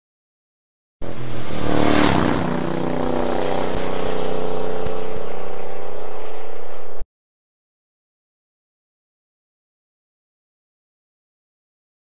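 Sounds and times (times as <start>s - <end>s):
mechanical engine drone: 1.0s - 7.0s.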